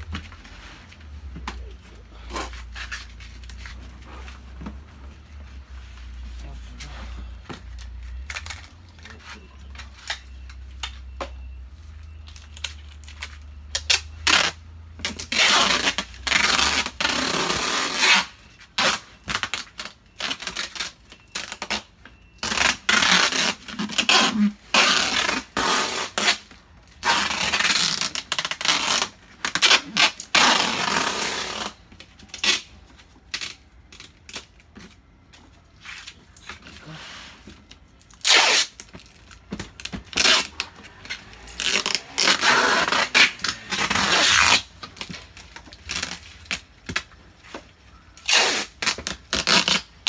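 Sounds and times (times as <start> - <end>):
packing tape rasping off roll: 12.4 - 35.0, 38.1 - 47.1, 48.2 - 50.0.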